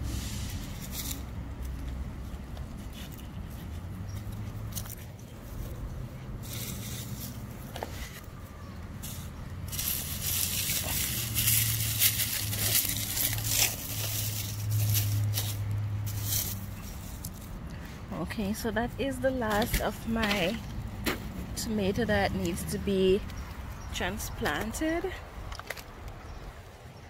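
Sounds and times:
dry rustling and crinkling: 0.4 - 18.0.

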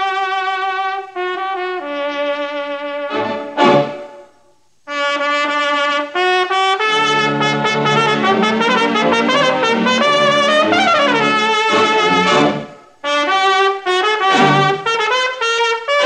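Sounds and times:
solo trumpet with vibrato: 0.0 - 16.0
lower accompaniment: 2.9 - 4.5, 6.9 - 15.1.

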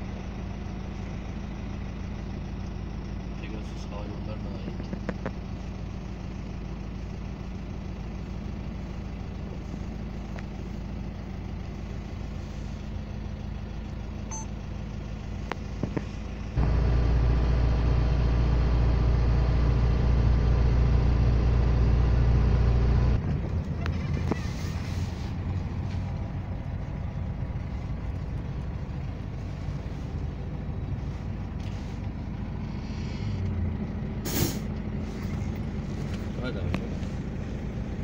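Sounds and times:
vehicle engine and road noise: 0.0 - 38.0.

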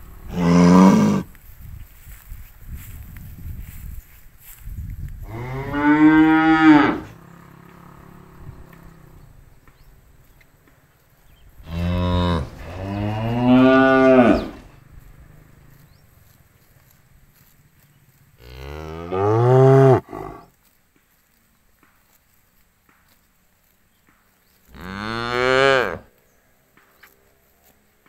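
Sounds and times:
cattle mooing: 5.3 - 8.4, 11.6 - 14.7.

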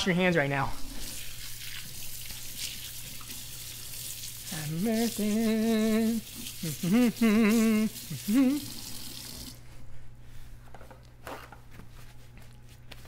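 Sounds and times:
tap water running over hands: 0.9 - 9.6.

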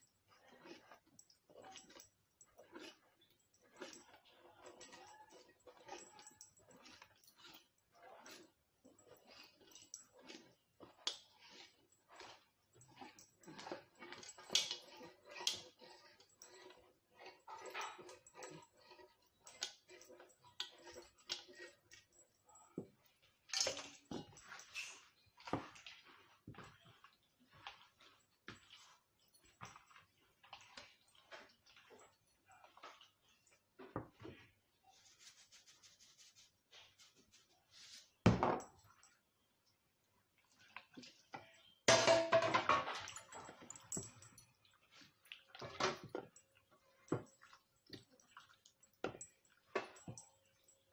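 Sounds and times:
soft handling of chicken in flour: 34.5 - 38.2.

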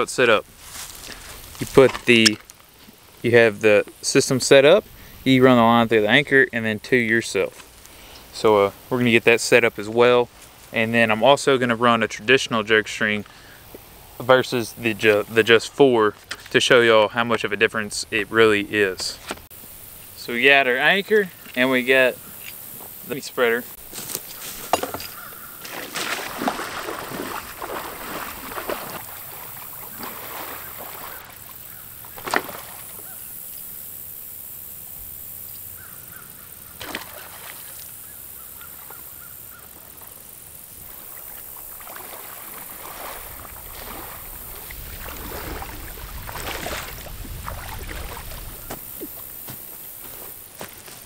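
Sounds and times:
person wading through water: 25.2 - 33.2, 36.8 - 38.0, 39.8 - 50.9.

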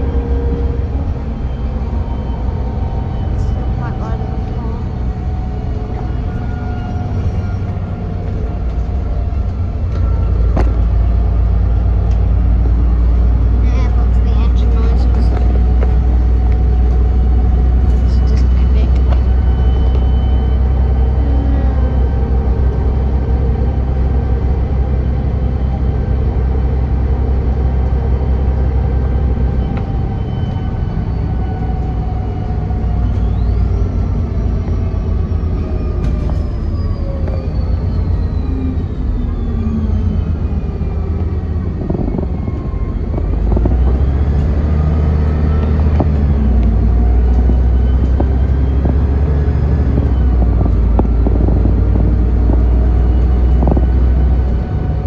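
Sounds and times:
bus engine rumble: 0.0 - 55.0
whining tones sliding down: 14.9 - 55.0.

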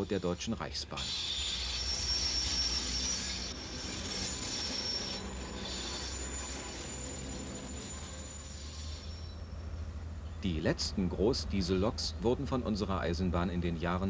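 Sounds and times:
train wheels rumbling on rail: 0.0 - 14.0
high-pitched wheel squeal: 1.0 - 9.9.

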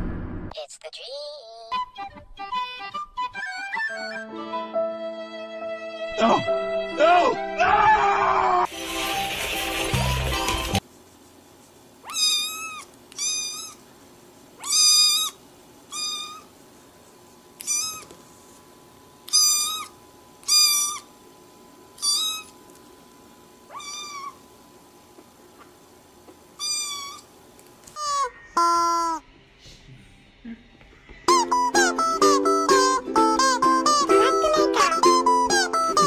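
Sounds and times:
kitten mewing: 12.0 - 13.8, 14.6 - 16.5, 17.6 - 18.2, 19.3 - 21.1, 22.0 - 22.6, 23.7 - 24.4, 26.6 - 27.3, 33.9 - 36.0.

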